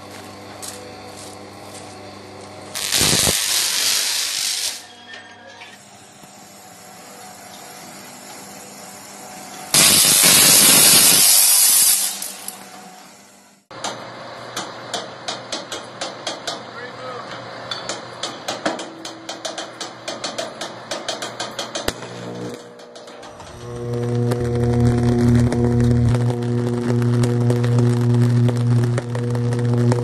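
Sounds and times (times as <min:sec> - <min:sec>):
electric arc bursts: 0:02.7 - 0:04.9, 0:09.7 - 0:12.6, 0:23.3 - 0:30.0
steady electrical hum: 0:21.9 - 0:30.0.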